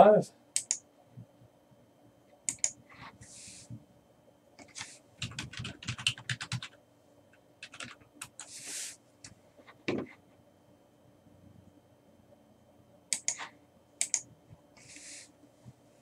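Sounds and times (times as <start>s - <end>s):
computer keyboard typing: 2.5s - 2.8s, 4.6s - 6.8s, 7.6s - 8.5s, 13.2s - 14.3s
soft hiss: 13.2s - 16.0s.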